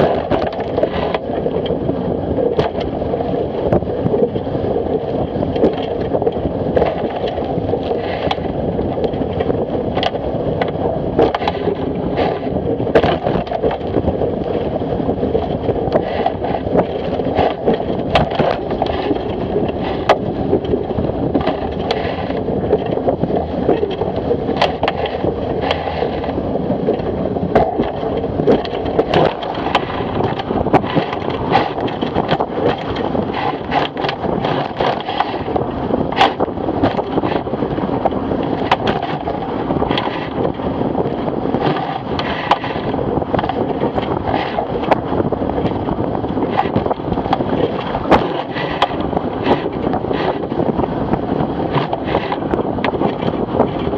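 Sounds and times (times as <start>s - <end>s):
water rushing past hull: 0.0s - 53.9s
waves slapping against hull: 0.0s - 53.9s
wind buffeting microphone: 0.0s - 53.9s.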